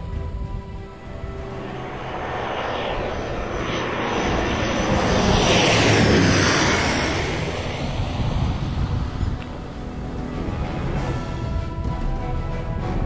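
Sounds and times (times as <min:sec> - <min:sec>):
propeller aircraft flying over: 0:00.0 - 0:13.0.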